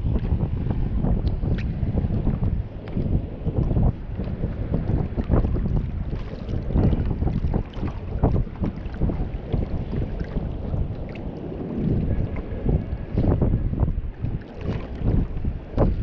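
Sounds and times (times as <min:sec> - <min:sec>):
wind buffeting microphone: 0:00.0 - 0:16.0
small waves lapping: 0:14.1 - 0:16.0.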